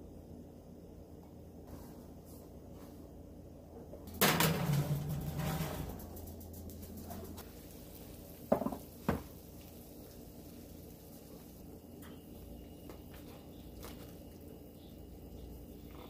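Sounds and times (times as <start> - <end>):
metal clanks of oven tray: 4.1 - 7.4
faint steady hiss: 6.0 - 16.0.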